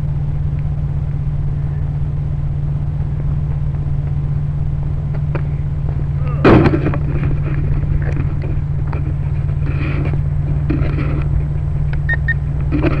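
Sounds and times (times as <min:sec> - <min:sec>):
low rumble: 0:00.0 - 0:13.0
faint scuffs and ticks: 0:07.0 - 0:13.0.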